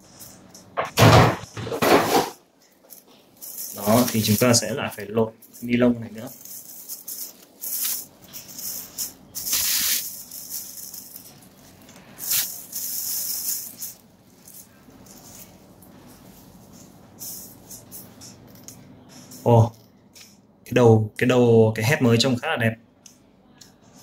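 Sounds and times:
plastic bag crinkling: 2.6 - 16.5.

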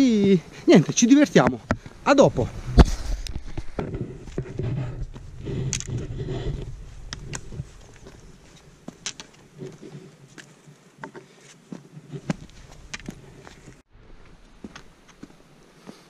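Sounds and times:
boot footsteps on stones: 6.7 - 16.0.

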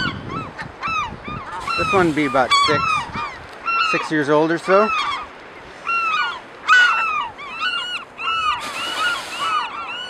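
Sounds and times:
gulls calling: 0.0 - 10.0
hissing rush: 1.6 - 2.9, 8.5 - 9.8.

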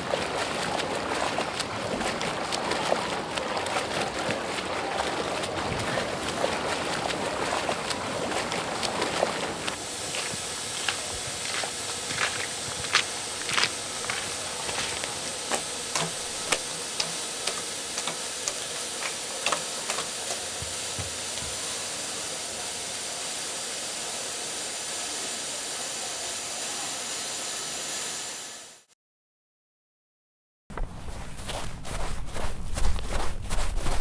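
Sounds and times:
faint hum: 1.6 - 28.9
machine hiss: 7.1 - 28.9.

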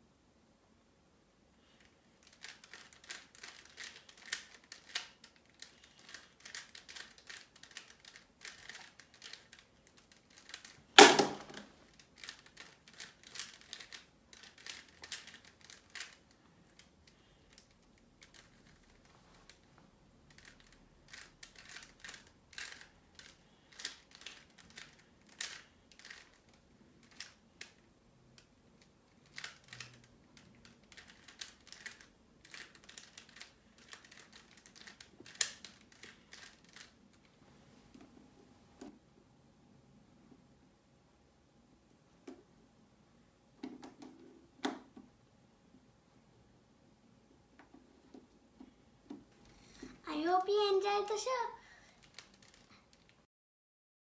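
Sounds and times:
puzzle cube clicking: 2.2 - 16.9, 20.3 - 37.0.

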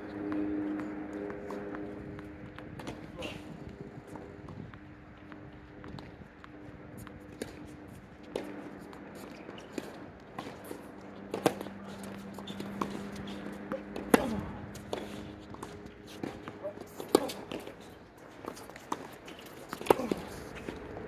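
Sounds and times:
steady low hum: 0.0 - 21.0
tennis ball bouncing on court: 8.3 - 21.0
racket striking tennis ball: 9.8 - 20.8.

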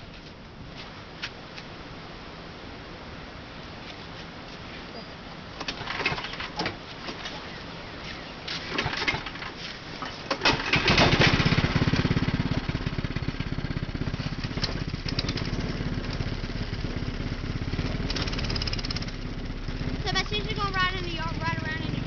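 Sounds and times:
go-kart engine starting and idling: 5.6 - 7.5, 8.6 - 22.0.

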